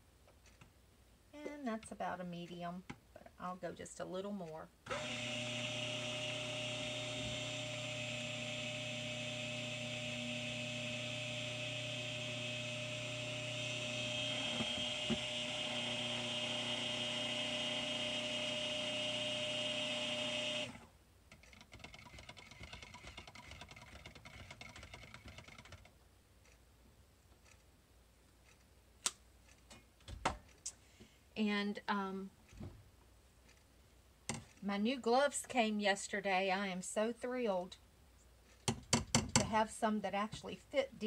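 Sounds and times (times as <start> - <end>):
stick blender running: 4.9 - 20.9.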